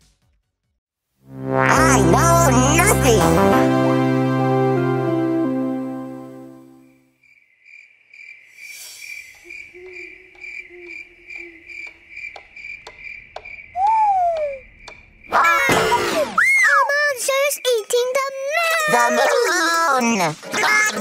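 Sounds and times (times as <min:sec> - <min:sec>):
crickets chirping: 0:07.2 - 0:20.4.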